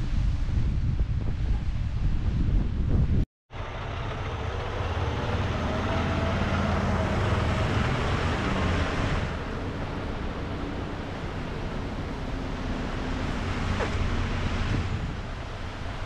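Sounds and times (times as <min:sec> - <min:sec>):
truck engine rumbling: 0:03.5 - 0:16.0.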